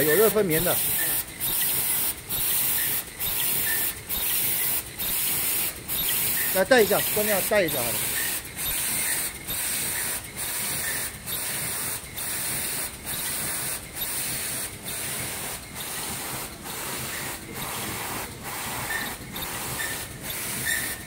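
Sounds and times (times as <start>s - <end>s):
production machine hissing: 0.0s - 21.0s.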